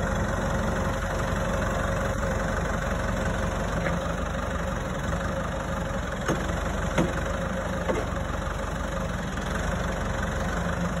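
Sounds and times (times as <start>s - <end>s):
diesel tractor engine idling: 0.0s - 11.0s
sharp knocks: 6.3s - 7.2s.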